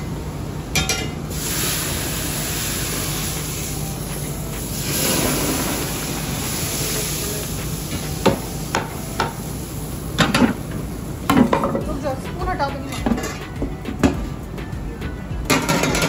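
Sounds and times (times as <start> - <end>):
metal cookware clinks: 0.8 - 1.2
hot oil sizzling in pot: 1.2 - 13.3.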